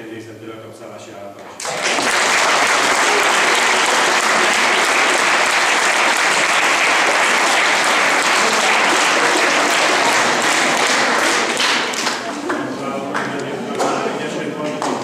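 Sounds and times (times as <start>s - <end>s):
crowd applause: 1.6s - 15.0s.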